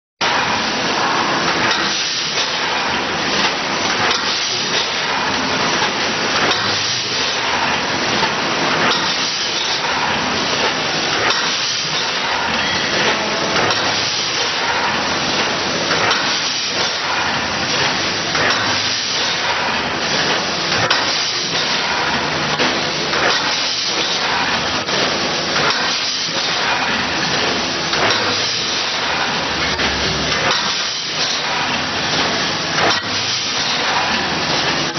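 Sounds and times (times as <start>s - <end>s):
mechanical clatter: 0.2s - 34.9s
packaging machine hiss: 8.7s - 34.9s.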